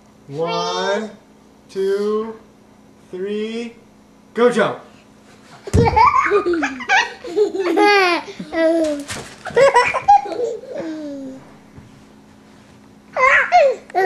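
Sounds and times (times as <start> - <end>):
thump: 5.7 - 6.1
small child laughing: 5.7 - 11.4, 13.2 - 14.0.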